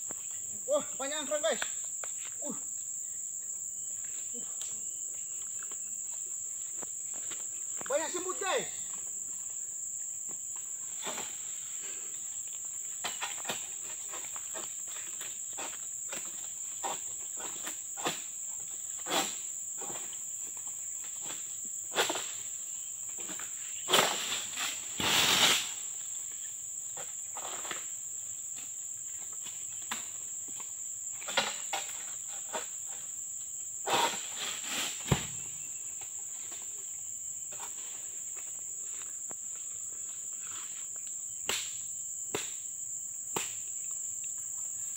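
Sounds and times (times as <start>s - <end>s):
loud crashing rustle: 23.9s - 25.8s.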